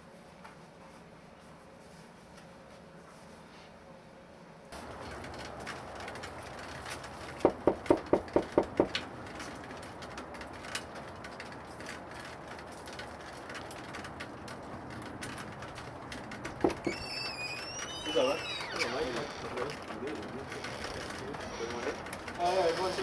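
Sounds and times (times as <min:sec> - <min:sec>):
knocks on a door: 0:07.4 - 0:09.0, 0:16.6 - 0:16.9.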